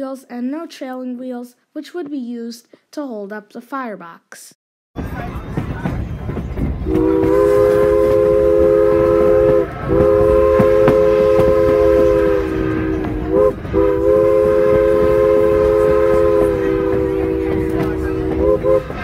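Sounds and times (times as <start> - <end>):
low rumble of moving train: 5.0 - 19.0
steam whistle chord: 6.9 - 19.0.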